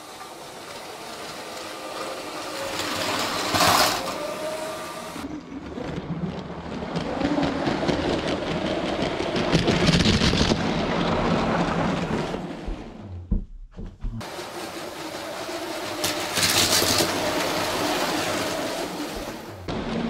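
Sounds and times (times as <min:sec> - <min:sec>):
toy train rattling on plastic track: 0:00.1 - 0:04.4, 0:15.1 - 0:18.5
low motor hum: 0:10.6 - 0:20.0.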